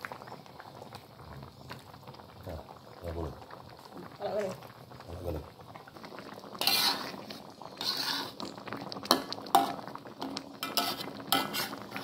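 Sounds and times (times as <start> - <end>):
spatula scraping a wok: 6.6 - 12.0.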